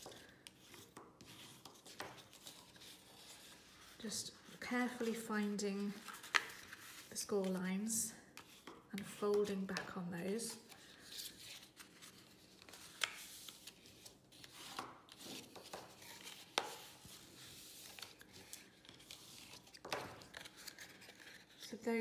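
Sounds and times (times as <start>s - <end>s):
paper handling: 10.5s - 21.7s.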